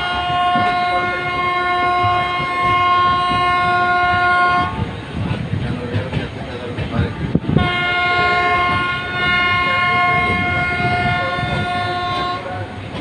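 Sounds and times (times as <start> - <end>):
locomotive air horn blast: 0.0 - 4.8, 7.4 - 12.6
train coaches rolling on track: 0.0 - 13.0.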